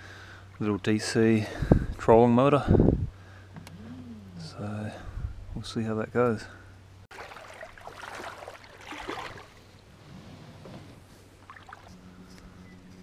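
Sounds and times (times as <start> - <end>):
water sloshing: 7.1 - 10.0, 11.2 - 12.0.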